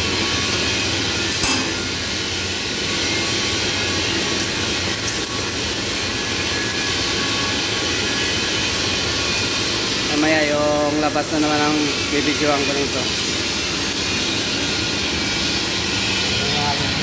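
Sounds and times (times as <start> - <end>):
welding arc crackling hiss: 0.0 - 17.0.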